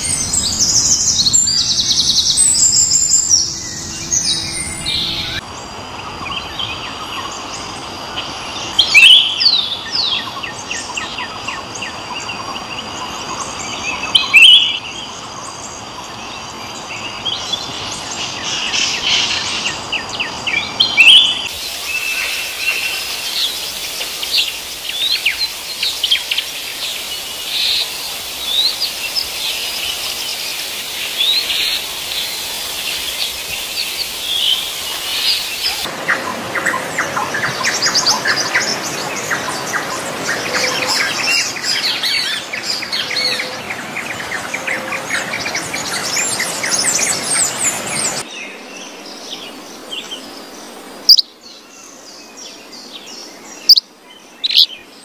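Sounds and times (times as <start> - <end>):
birds chirping and singing: 0.0 - 5.7, 17.1 - 55.0.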